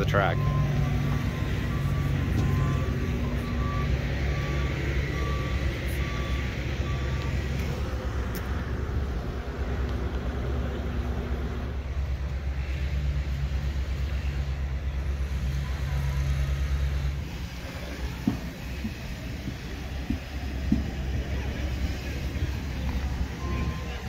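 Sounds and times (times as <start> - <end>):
low engine rumble: 0.0 - 24.0
reversing alarm beeping: 0.2 - 7.9, 19.8 - 24.0.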